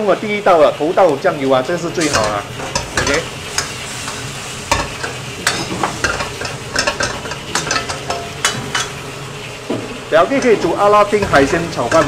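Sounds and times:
prawns sizzling in a wok: 0:00.0 - 0:12.0
metal spatula scraping a wok: 0:02.0 - 0:09.1.

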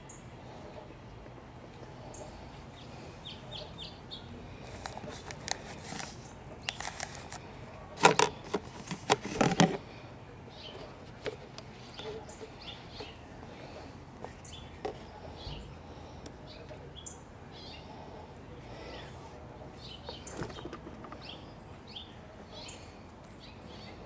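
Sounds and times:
birds chirping: 0:00.0 - 0:08.6, 0:09.8 - 0:24.0
paper cups knocking and scraping: 0:04.6 - 0:10.0, 0:10.7 - 0:15.1, 0:20.0 - 0:21.4.

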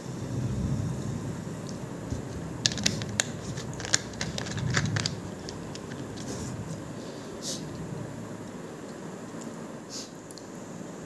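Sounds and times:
plastic bottle clicks and crinkles: 0:02.2 - 0:06.4.

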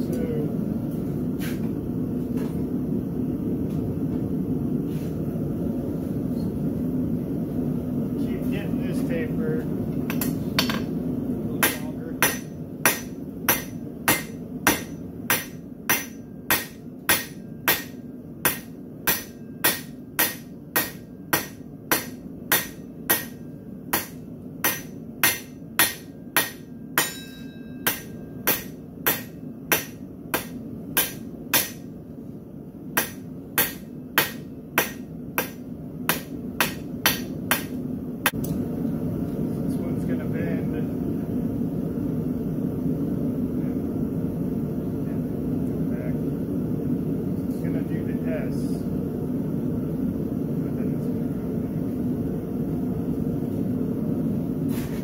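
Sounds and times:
low hum: 0:00.0 - 0:54.7
hammer striking hot steel on anvil: 0:10.1 - 0:10.9, 0:11.6 - 0:31.9, 0:33.0 - 0:38.4.

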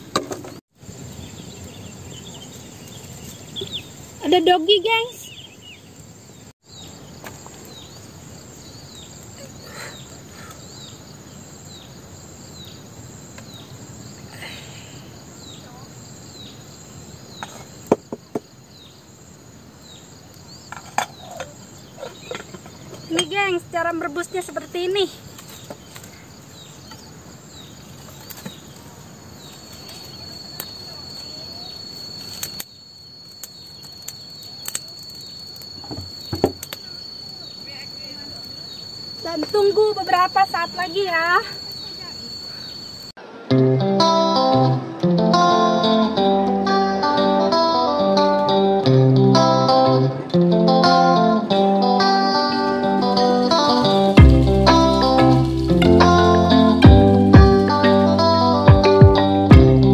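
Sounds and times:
crickets buzzing: 0:00.0 - 0:43.2, 0:45.1 - 0:59.9
insects chirring: 0:00.0 - 0:43.2, 0:45.1 - 0:59.9
high continuous tone: 0:29.2 - 0:43.2, 0:51.0 - 0:59.9.

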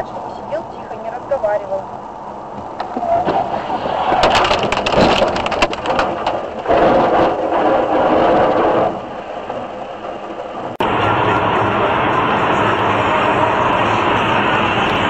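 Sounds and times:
steady rushing noise: 0:00.0 - 0:15.0
vehicle collision crunch: 0:02.5 - 0:09.6
debris clattering: 0:03.3 - 0:09.0.

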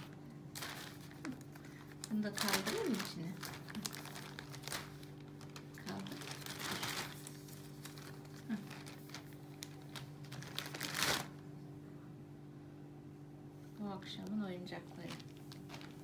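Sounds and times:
plastic bag crinkling: 0:00.0 - 0:11.5, 0:14.7 - 0:16.0.

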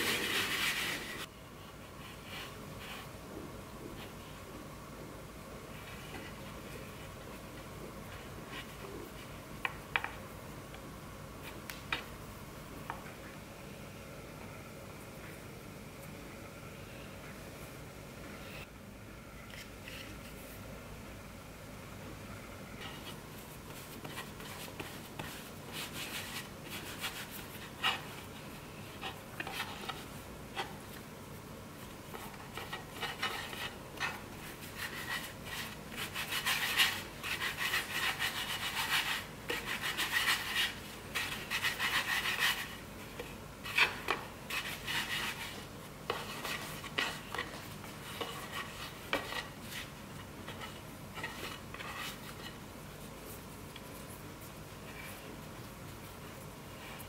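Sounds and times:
hands rolling dough on board: 0:31.8 - 0:56.2.

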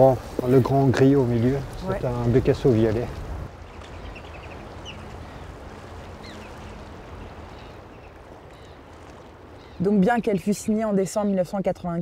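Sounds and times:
sea waves: 0:00.0 - 0:11.0
wind: 0:00.0 - 0:12.0
faint high bird calls: 0:03.6 - 0:10.0.

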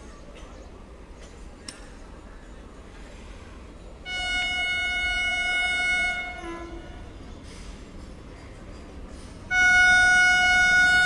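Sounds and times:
locomotive horn blast: 0:04.0 - 0:07.0, 0:09.5 - 0:11.0.

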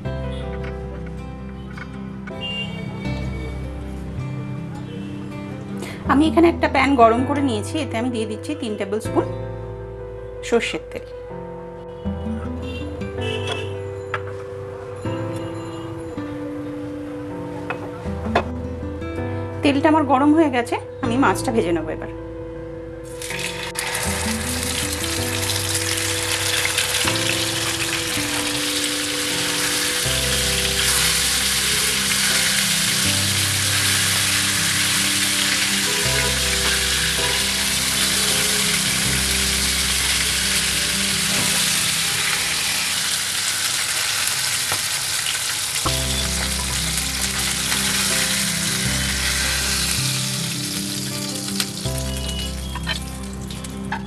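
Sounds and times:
background music: 0:00.0 - 0:54.0
fish sizzling in oil: 0:23.1 - 0:54.0.

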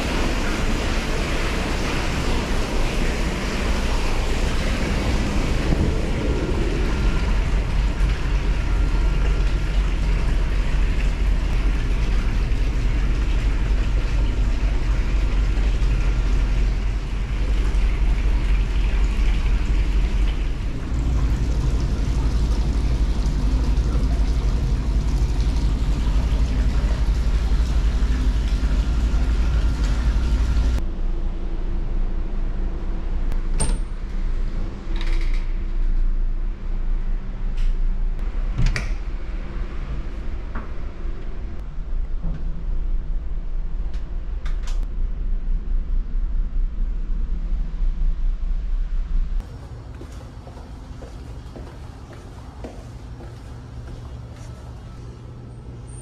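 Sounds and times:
water churning: 0:00.0 - 0:30.8
ship engines rumbling: 0:00.0 - 0:34.9
indoor hum: 0:00.0 - 0:56.0
wind on microphone: 0:03.2 - 0:09.8.

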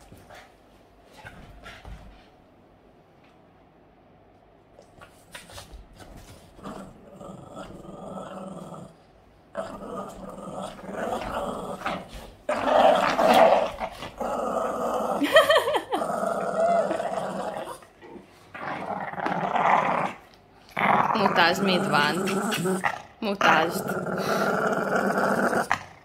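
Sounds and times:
dog growling in play: 0:06.6 - 0:26.0.

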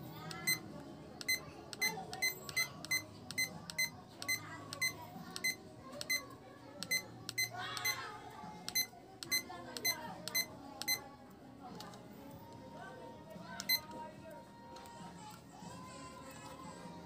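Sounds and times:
digital timer beeps: 0:00.3 - 0:08.0, 0:08.7 - 0:11.0, 0:13.6 - 0:13.9.

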